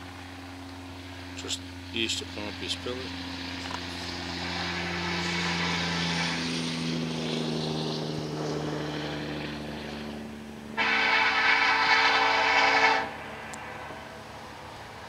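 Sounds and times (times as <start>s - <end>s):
locomotive engine and rail drone: 0.0s - 15.0s
locomotive air horn blast: 10.8s - 14.1s.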